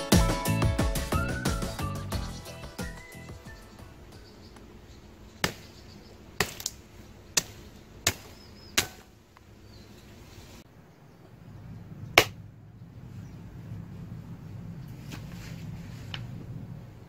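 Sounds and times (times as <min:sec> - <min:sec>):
axe chopping sapling: 0:05.4 - 0:05.8, 0:06.4 - 0:09.2, 0:12.2 - 0:12.4.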